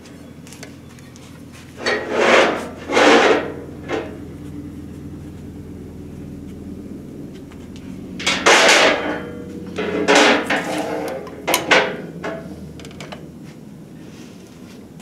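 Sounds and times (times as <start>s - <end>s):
metal rod clanking on metal: 8.2s - 13.2s.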